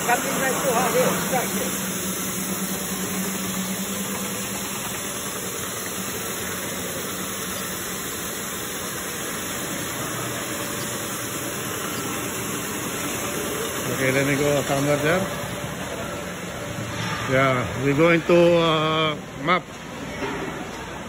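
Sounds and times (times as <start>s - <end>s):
floor scrubber whirring: 0.0s - 16.6s.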